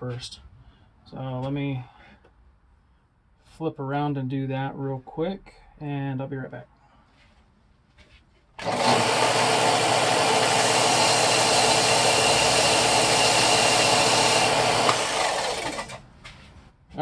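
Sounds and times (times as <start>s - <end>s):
belt sander running: 8.6s - 16.1s.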